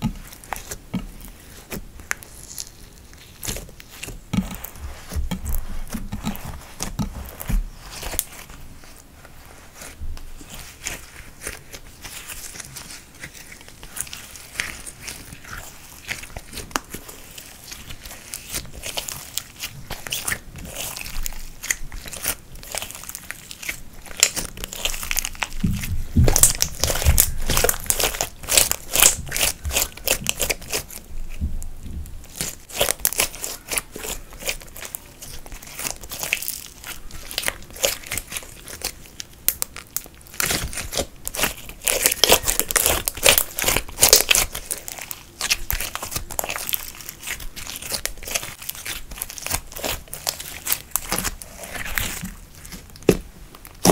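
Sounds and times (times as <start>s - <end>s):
sticky clicks and crackles: 11.5s - 31.0s, 32.3s - 53.9s
slime squeezed by hand: 32.3s - 53.2s.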